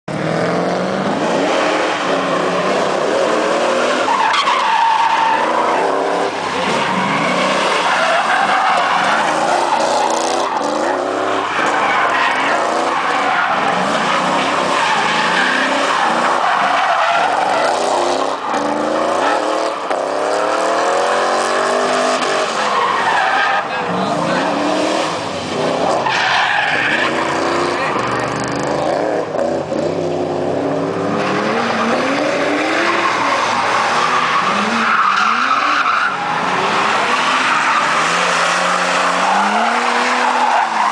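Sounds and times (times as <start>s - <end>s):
car engine revving: 0.0s - 40.9s
tyres squealing: 31.8s - 40.9s.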